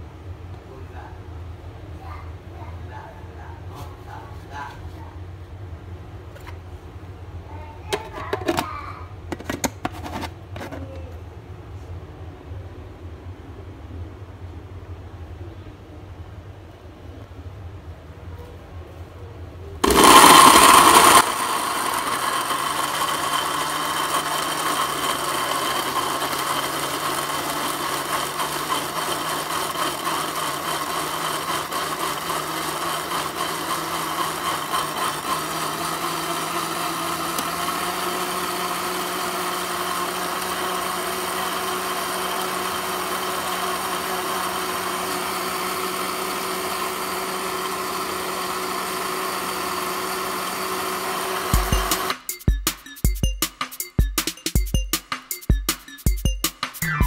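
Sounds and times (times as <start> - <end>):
blender blending fruit: 19.8 - 52.2.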